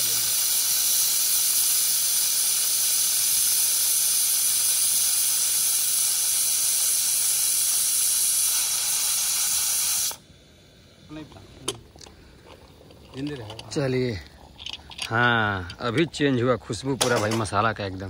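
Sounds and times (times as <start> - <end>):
pressure cooker whistle hissing: 0.0 - 10.2.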